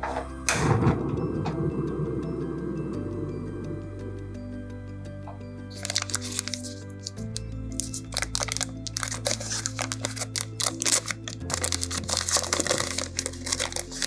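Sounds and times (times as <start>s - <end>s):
paper wrapper crinkling: 5.7s - 14.0s.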